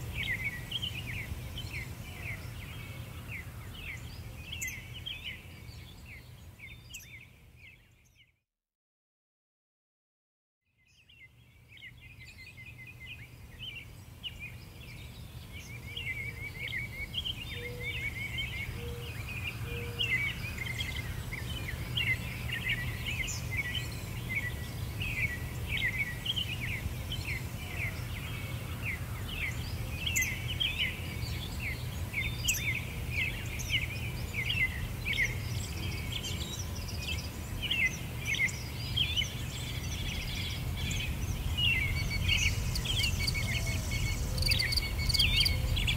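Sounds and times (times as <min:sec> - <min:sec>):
birds chirping: 0:11.0 - 0:45.9.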